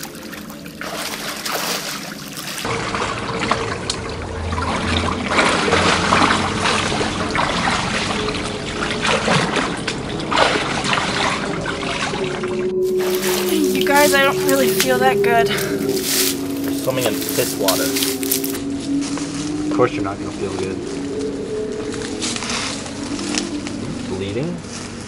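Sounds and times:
person wading and splashing: 0.0 - 19.7
creek water trickling: 0.0 - 25.0.

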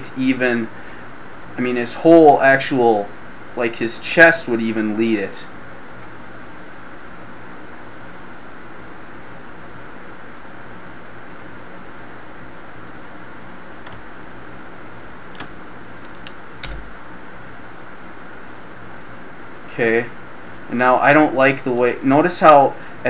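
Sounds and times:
keyboard and mouse clicks: 11.3 - 13.1, 13.8 - 14.4, 15.0 - 16.8.

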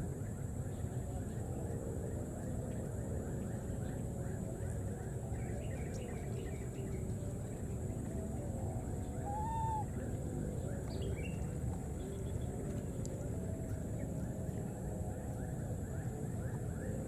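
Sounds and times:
high animal calls: 9.2 - 9.9.

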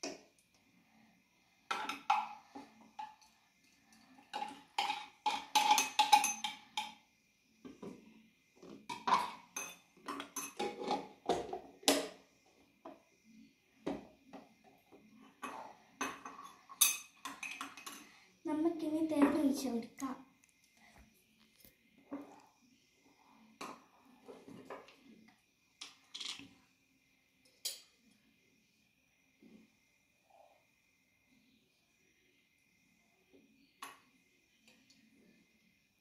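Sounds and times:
spoon clinking on glass bowl: 3.0 - 7.0, 9.0 - 10.7, 15.4 - 18.1.

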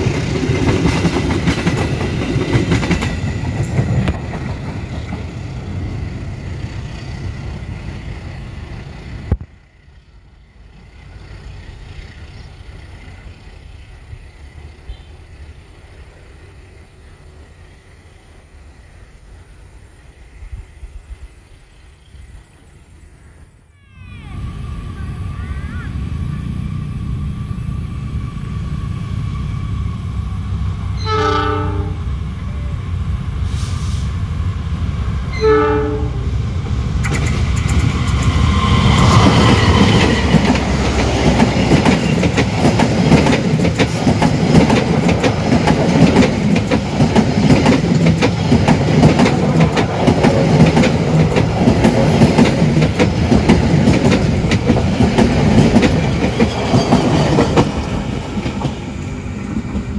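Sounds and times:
locomotive rumbling: 0.0 - 59.9
train horn blasts: 14.8 - 15.3, 31.0 - 32.1, 35.3 - 36.3.

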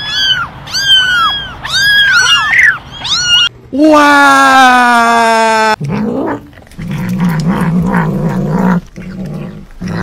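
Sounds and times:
cat rising cry: 0.0 - 3.5
cat growling: 5.7 - 10.0.

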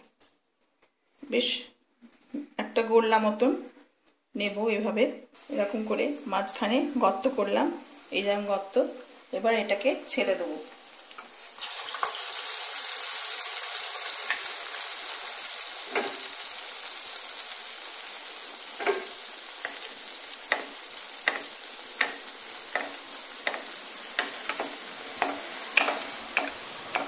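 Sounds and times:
oil sizzling: 5.4 - 27.0
oil popping and crackling: 11.2 - 27.0.

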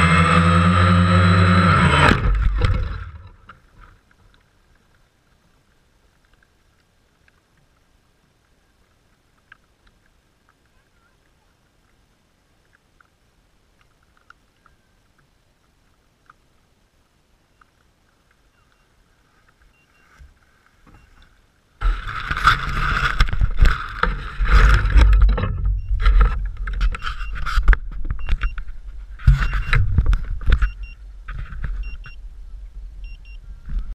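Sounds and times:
faint ticks: 3.2 - 21.4
camera handling rumble and rustle: 21.8 - 32.2.

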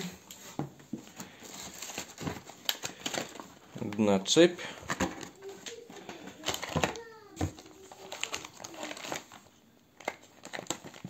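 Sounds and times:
packaging clicks and rattles: 1.1 - 4.0, 4.7 - 11.0
packaging crinkling: 1.1 - 11.0.

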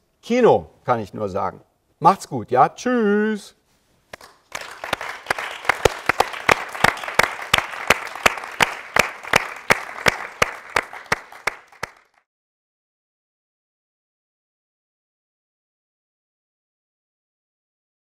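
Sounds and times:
sharp close handclaps: 4.1 - 12.3
applause: 4.2 - 12.3.

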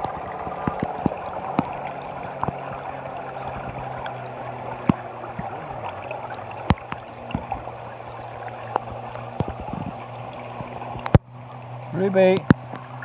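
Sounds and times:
river water lapping: 0.0 - 13.0
small splashes and drips: 0.0 - 13.0.

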